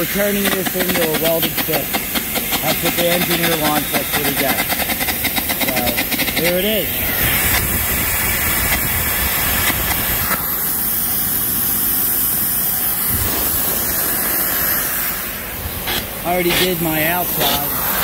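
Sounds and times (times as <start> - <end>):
compressed air hissing: 0.0 - 18.0
arc crackling: 7.1 - 18.0.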